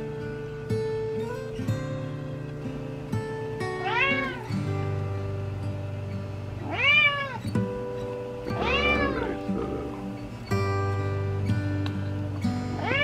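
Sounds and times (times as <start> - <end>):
cat meowing: 3.8 - 4.5, 6.6 - 7.4, 8.5 - 10.1, 12.8 - 13.0
background music: 7.6 - 11.4.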